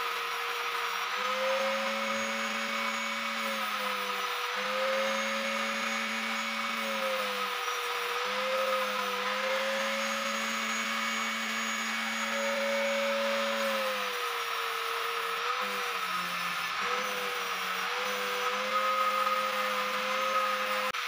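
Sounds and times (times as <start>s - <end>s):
angle grinder grinding metal: 0.0s - 21.0s.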